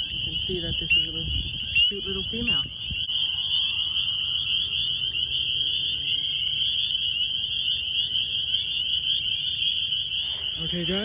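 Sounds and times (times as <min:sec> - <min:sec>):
frog chorus: 0:00.0 - 0:11.0.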